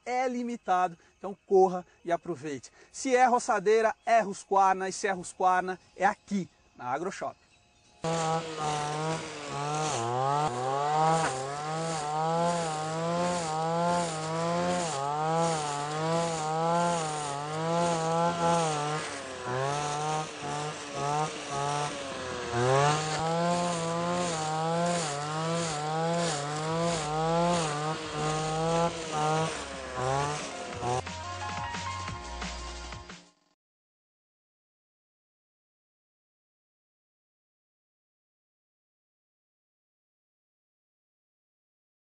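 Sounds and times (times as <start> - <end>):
brushcutter engine cutting grass: 8.0 - 31.1.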